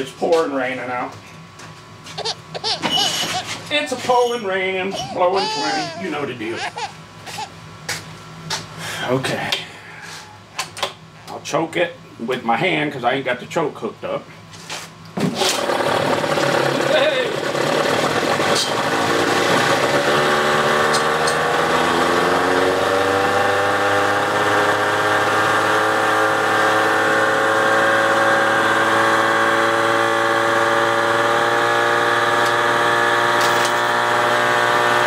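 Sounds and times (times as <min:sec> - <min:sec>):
outboard motor running: 0:02.2 - 0:03.6.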